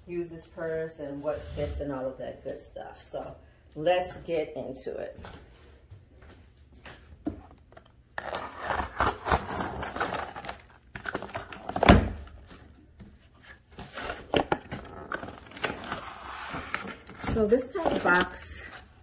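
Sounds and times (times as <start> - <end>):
cardboard box tearing and rustling: 8.2 - 12.3.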